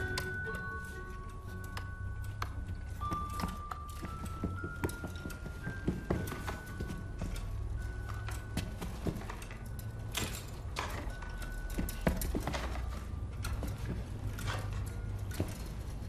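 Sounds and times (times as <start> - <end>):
hollow knocks and clicks: 1.8 - 7.4.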